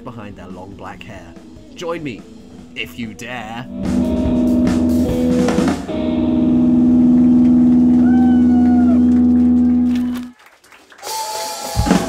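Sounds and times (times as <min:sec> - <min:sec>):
electric guitar chord ringing: 0:00.4 - 0:10.3
high gliding note: 0:00.4 - 0:10.3
rock band playing live: 0:03.6 - 0:10.2
drums and cymbals crashing: 0:03.7 - 0:07.8, 0:11.6 - 0:12.0.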